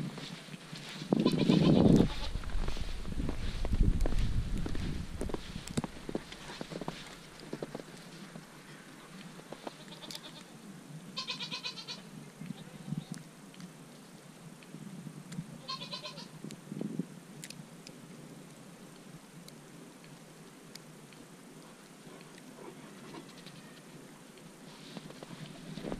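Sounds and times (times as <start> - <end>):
goats bleating: 1.2 - 2.4, 11.2 - 12.0.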